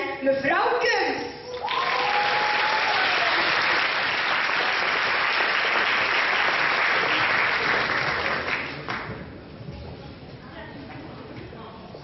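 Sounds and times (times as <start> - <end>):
audience applauding: 1.6 - 9.3.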